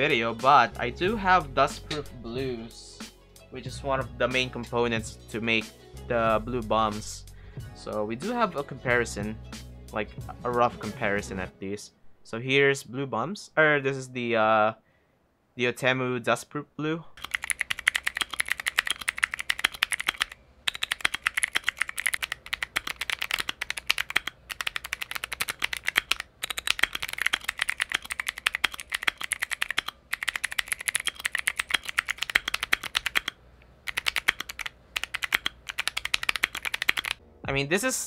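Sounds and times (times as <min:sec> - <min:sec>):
mechanical keyboard clicking: 0:17.2 - 0:37.2.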